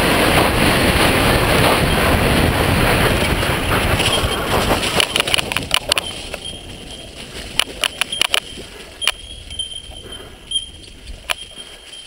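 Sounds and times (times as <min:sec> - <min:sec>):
mountain bike clacking on bumps: 0:00.0 - 0:12.0
thin steady high tone: 0:08.1 - 0:12.0.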